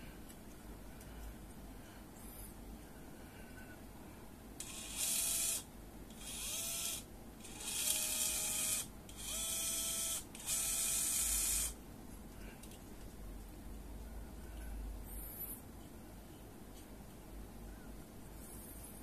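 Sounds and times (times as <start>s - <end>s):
small motor whirring: 4.6s - 11.8s.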